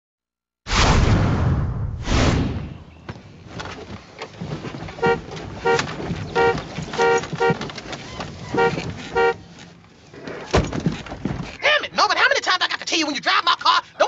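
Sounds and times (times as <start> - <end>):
car horn honks: 5.0 - 7.7, 8.4 - 9.5.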